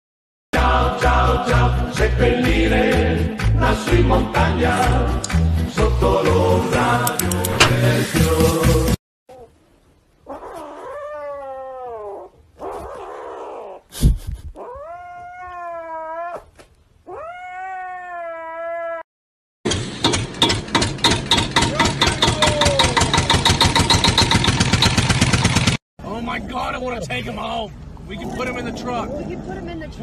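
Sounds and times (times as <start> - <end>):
kitten calling: 17.1 - 19.0.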